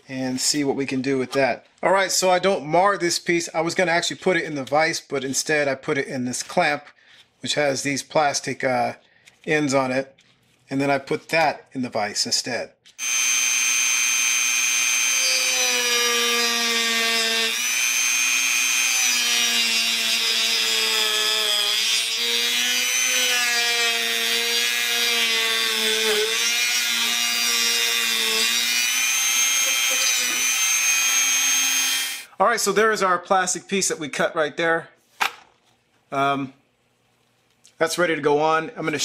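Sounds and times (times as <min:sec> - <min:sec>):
rotary tool cutting plastic: 0:12.9 - 0:32.3.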